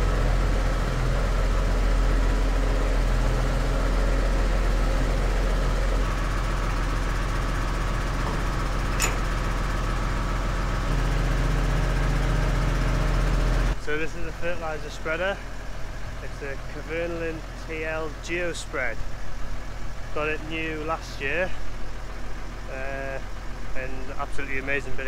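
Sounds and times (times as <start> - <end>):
tractor diesel engine idling: 0.0 - 25.0
sharp click: 8.3 - 9.4.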